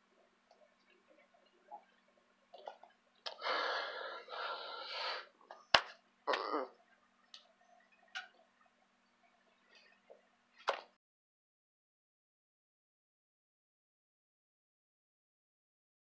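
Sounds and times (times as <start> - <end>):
faint electrical hum: 0.0 - 11.0
breathy rush: 3.3 - 5.4
hands slapping together: 5.7 - 6.5.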